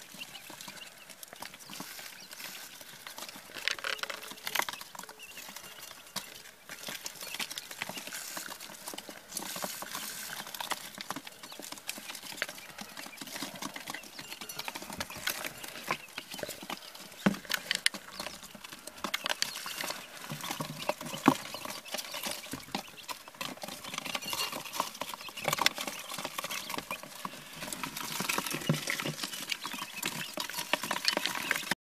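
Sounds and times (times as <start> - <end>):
chicks pecking taps: 0.0 - 31.8.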